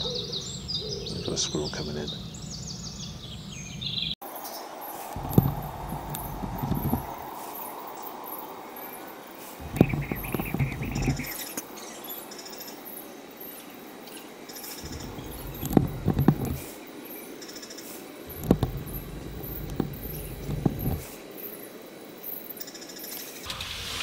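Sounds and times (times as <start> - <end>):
faint high bird chirps: 0.0 - 4.6
sharp knocks or scuffs: 5.2 - 7.2.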